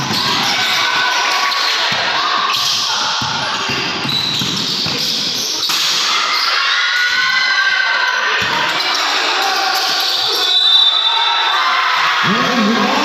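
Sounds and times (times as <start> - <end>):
basketball bouncing on wooden court: 1.9 - 5.2
echoing crowd voices: 5.5 - 13.0.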